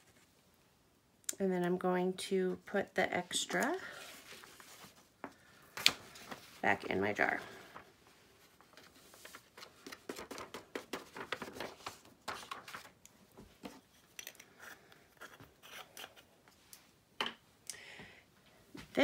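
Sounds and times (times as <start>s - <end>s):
paper rustling and crinkling: 3.5s - 14.0s.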